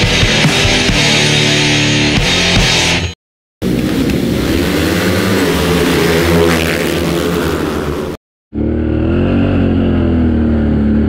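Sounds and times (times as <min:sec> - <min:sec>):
atv engine revving: 0:03.6 - 0:11.0.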